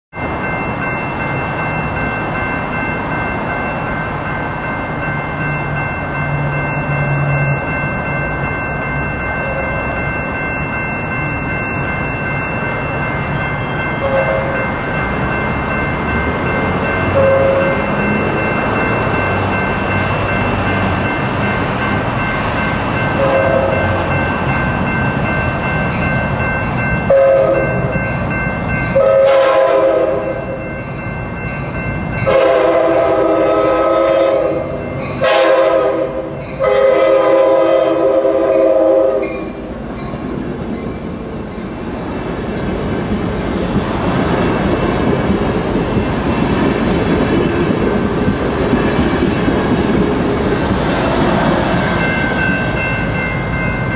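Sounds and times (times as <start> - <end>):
train rumbling past: 0.1 - 53.9
train air horn blasts: 14.1 - 14.6, 17.2 - 17.8, 23.2 - 24.0, 27.1 - 27.6, 29.0 - 30.5, 32.3 - 34.6, 35.2 - 39.4.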